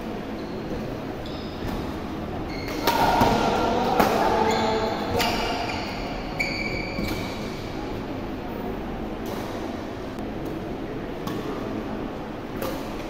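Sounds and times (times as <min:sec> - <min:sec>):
shoes squeaking on court floor: 0:00.2 - 0:07.8
rackets striking shuttlecock: 0:01.6 - 0:04.5, 0:09.1 - 0:11.8, 0:12.4 - 0:13.0.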